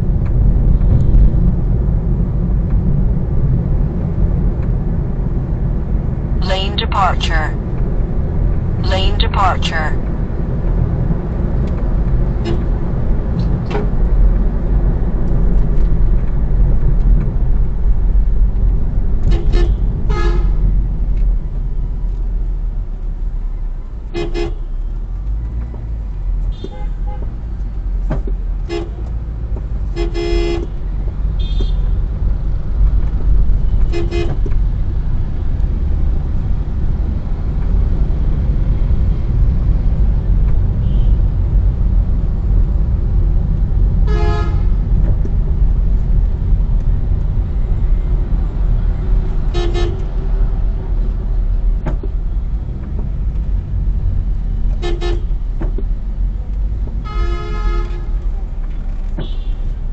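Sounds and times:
car road and engine rumble: 0:00.0 - 0:59.9
vehicle horns tooting: 0:44.1 - 0:44.8, 0:49.5 - 0:50.0, 0:57.0 - 0:58.2.

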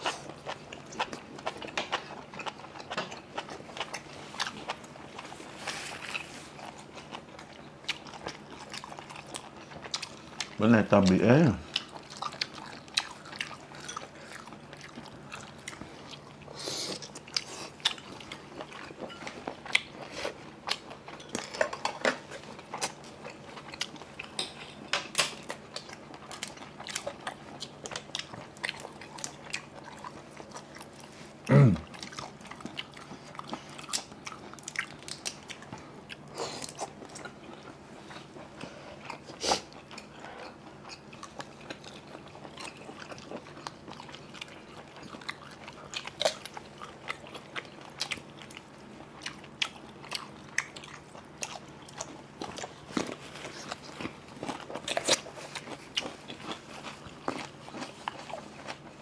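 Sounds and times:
people chewing seafood: 0:00.0 - 0:59.0
low grunt: 0:31.5 - 0:31.8.

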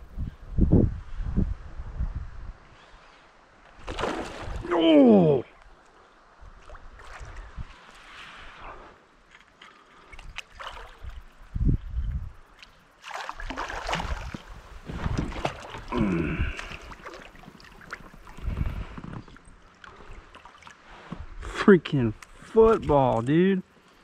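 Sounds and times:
water sloshing: 0:03.7 - 0:04.8, 0:09.3 - 0:11.4, 0:12.5 - 0:20.9.

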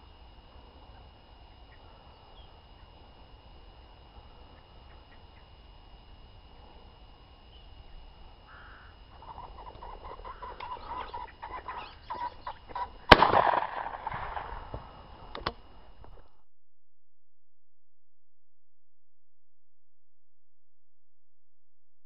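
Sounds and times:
pheasant cackling: 0:08.5 - 0:13.1
quiet crack: 0:12.7 - 0:16.4
shotgun shot: 0:13.1 - 0:15.0.

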